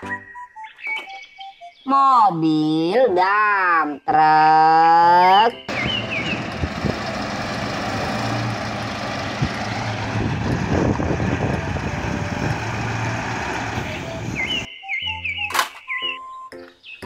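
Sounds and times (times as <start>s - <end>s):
truck diesel engine running: 5.7s - 14.7s.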